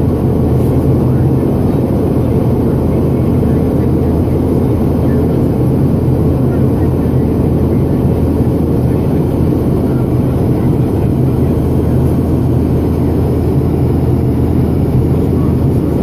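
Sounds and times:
airflow rumble: 0.0s - 16.0s
jet engine drone in cabin: 0.0s - 16.0s.

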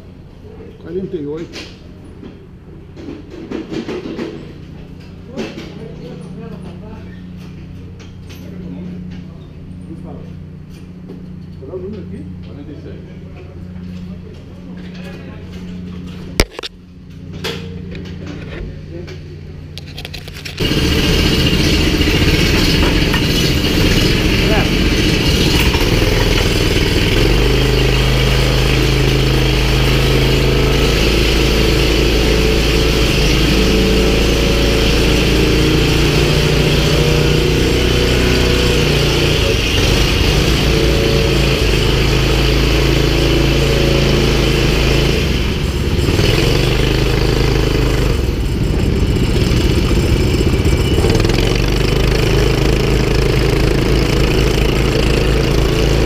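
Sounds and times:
kart engine accelerating: 20.5s - 56.0s.

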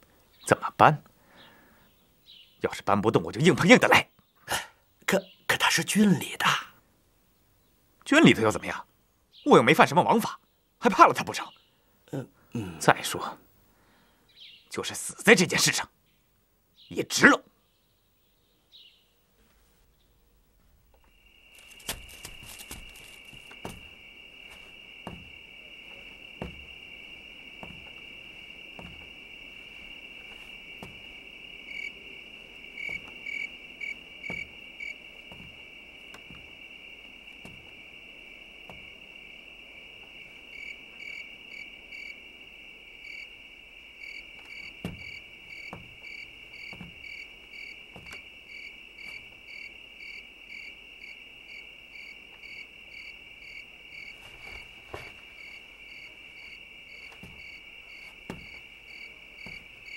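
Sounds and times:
cricket chirping in pulses: 20.9s - 59.9s
cricket trilling: 20.9s - 59.9s
faint soft knocks: 21.8s - 26.8s, 27.6s - 31.2s.

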